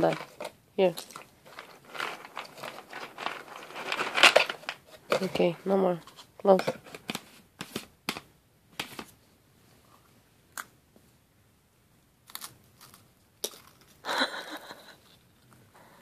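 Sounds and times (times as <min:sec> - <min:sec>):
baby chewing crunchy crackers: 0:12.3 - 0:14.1.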